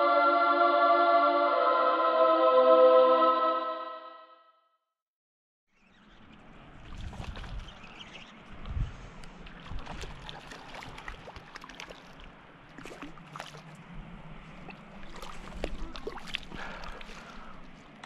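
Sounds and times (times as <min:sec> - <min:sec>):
fish splashing in water: 0:06.3 - 0:08.6, 0:09.4 - 0:17.7.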